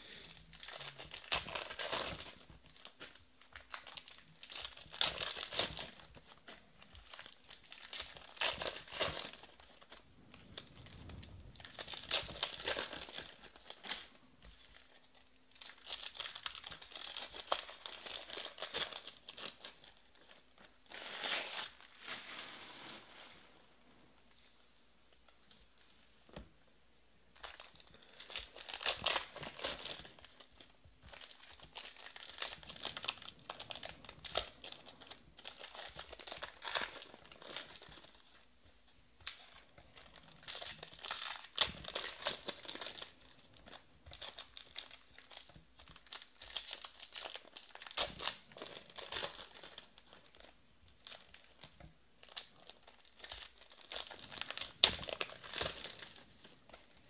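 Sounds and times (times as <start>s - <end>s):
foil wrappers tearing and crinkling: 0.4s - 14.1s, 14.7s - 22.4s, 27.4s - 38.4s, 39.2s - 56.8s.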